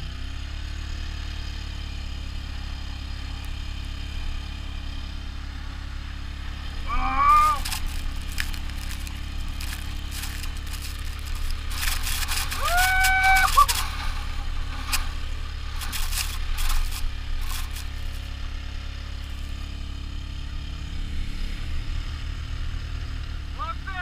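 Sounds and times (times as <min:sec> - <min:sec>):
quad bike engine drone: 0:00.0 - 0:24.0
person shouting: 0:06.8 - 0:07.7, 0:12.5 - 0:13.8, 0:23.6 - 0:24.0
sled knocking and rattling: 0:06.8 - 0:18.4.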